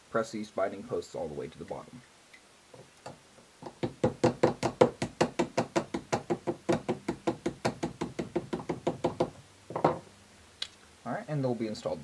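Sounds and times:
plastic hammer tapping: 0:03.6 - 0:10.0.

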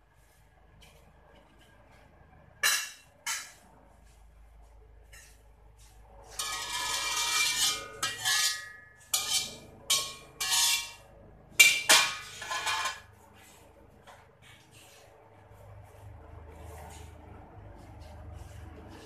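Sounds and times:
metal spatula scraping wok: 0:06.2 - 0:13.6
wok ringing: 0:06.3 - 0:13.1.

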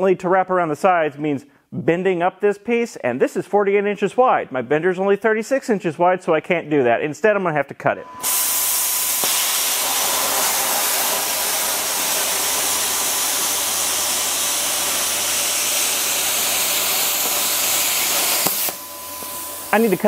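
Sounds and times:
plasma cutter hissing: 0:08.2 - 0:20.0.

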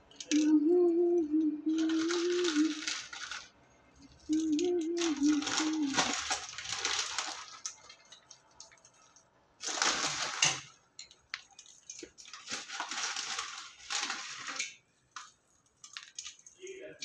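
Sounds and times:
crunchy snack mix pattering onto tray: 0:05.0 - 0:09.0, 0:09.6 - 0:16.6.

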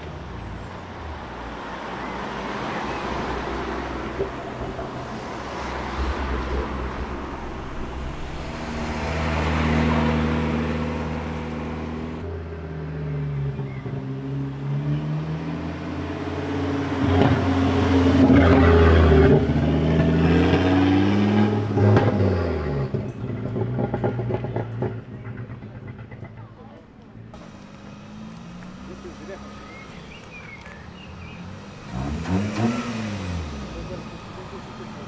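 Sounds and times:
car driving off: 0:00.0 - 0:35.0
car accelerating past: 0:01.2 - 0:26.2, 0:27.4 - 0:35.0.

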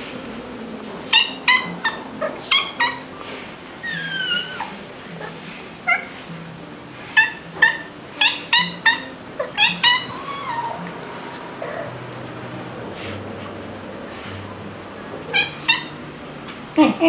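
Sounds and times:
cat meowing: 0:07.2 - 0:10.9, 0:15.3 - 0:15.9.

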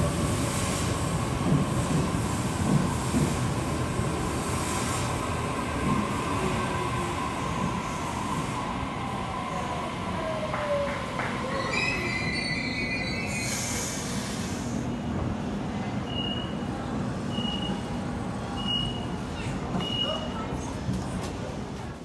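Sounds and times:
train rumble: 0:00.0 - 0:22.0
train brakes squealing: 0:11.4 - 0:14.8, 0:16.0 - 0:16.7, 0:17.3 - 0:17.9, 0:18.5 - 0:20.3
short air hiss: 0:13.3 - 0:14.8.

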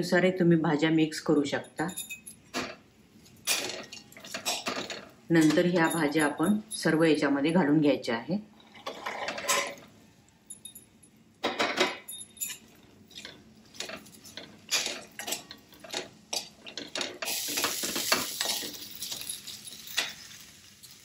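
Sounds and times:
ladle clinking and scraping pan: 0:08.8 - 0:09.9
vegetables sizzling in oil: 0:13.8 - 0:21.0.

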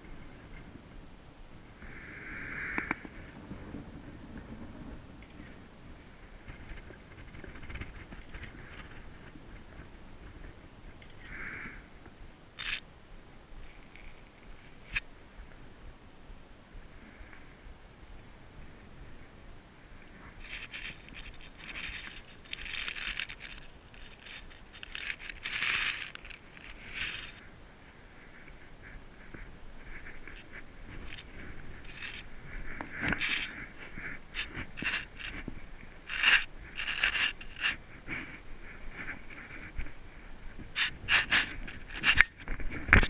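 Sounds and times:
boots scraping on rock: 0:32.9 - 0:35.4.

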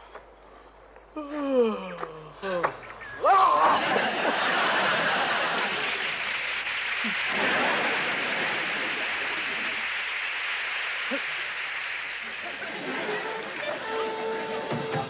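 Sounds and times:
audience laughing: 0:03.4 - 0:15.0.

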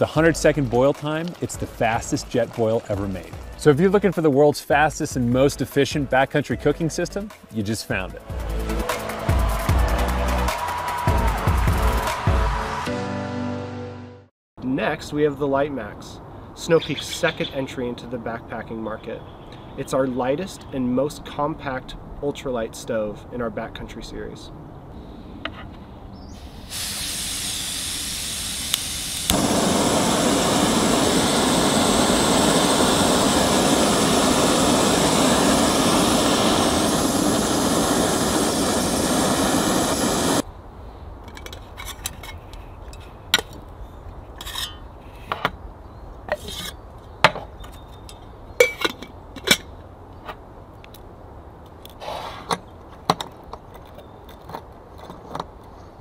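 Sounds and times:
gas hissing from stove valve: 0:26.4 - 0:40.4
stove burner flame roar: 0:26.7 - 0:40.4.

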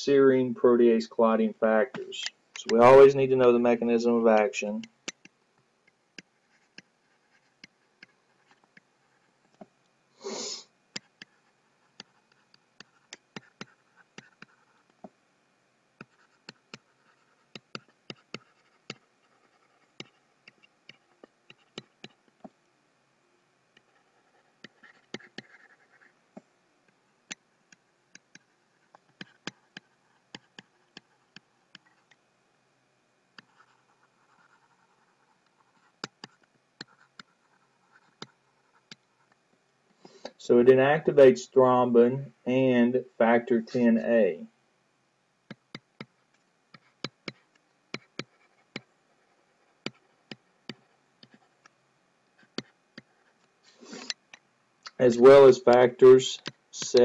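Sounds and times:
stylus tapping on pen tablet: 0:04.8 - 0:08.9, 0:10.9 - 0:15.2, 0:16.0 - 0:22.6, 0:27.3 - 0:32.2, 0:36.0 - 0:37.4, 0:45.5 - 0:48.9, 0:49.8 - 0:51.7, 0:52.4 - 0:53.1.

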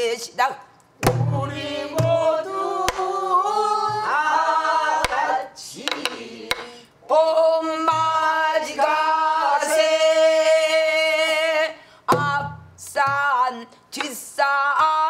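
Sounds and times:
barrel drum struck with stick: 0:01.0 - 0:02.2
woman singing: 0:09.7 - 0:15.0.

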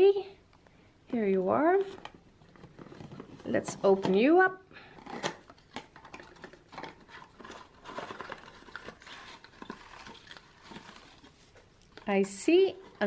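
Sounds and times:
shredded paper rustling: 0:06.7 - 0:11.6.

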